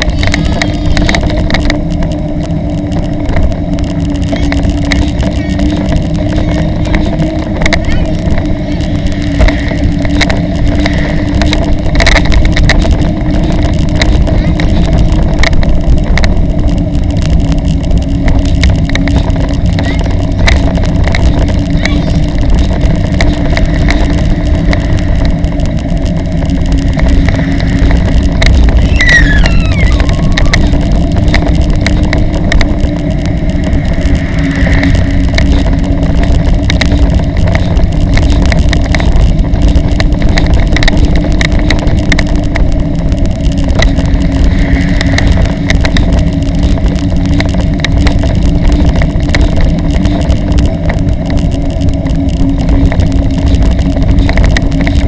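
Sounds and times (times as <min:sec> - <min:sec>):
steady low hum: 0:00.0 - 0:55.0
wheels rolling on road: 0:00.0 - 0:55.0
wind buffeting microphone: 0:00.0 - 0:55.0.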